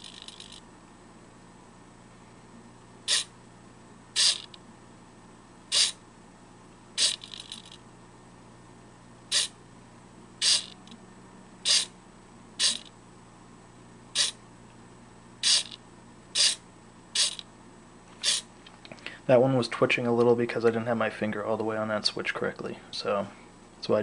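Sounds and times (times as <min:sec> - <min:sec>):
faint jittery servo buzz: 0:00.0 - 0:00.7, 0:03.0 - 0:03.4, 0:04.1 - 0:04.6, 0:05.7 - 0:06.0, 0:06.9 - 0:07.8, 0:09.3 - 0:09.6, 0:10.4 - 0:11.0, 0:11.6 - 0:12.0, 0:12.6 - 0:13.0, 0:14.1 - 0:14.4, 0:15.4 - 0:17.5, 0:18.1 - 0:18.5
servo motors whirring: 0:03.1 - 0:03.3, 0:04.2 - 0:04.6, 0:05.7 - 0:06.0, 0:07.0 - 0:07.8, 0:09.3 - 0:09.6, 0:10.4 - 0:10.9, 0:11.7 - 0:11.9, 0:12.6 - 0:12.9, 0:14.2 - 0:14.4, 0:15.4 - 0:15.8, 0:16.4 - 0:16.6, 0:17.2 - 0:17.4, 0:18.2 - 0:18.5.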